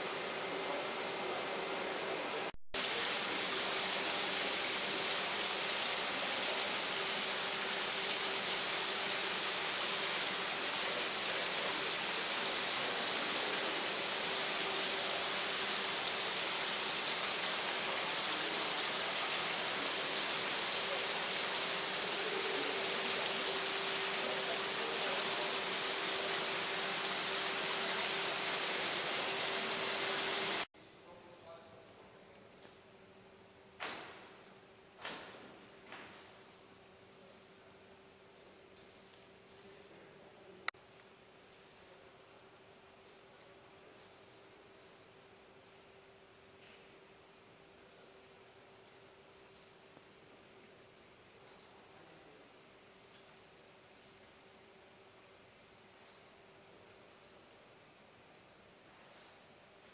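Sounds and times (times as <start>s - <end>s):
waterfall rushing over rocks: 2.8s - 30.7s.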